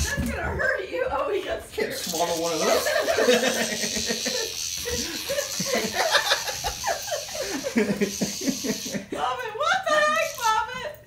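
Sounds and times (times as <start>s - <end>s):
people laughing: 2.6s - 10.1s.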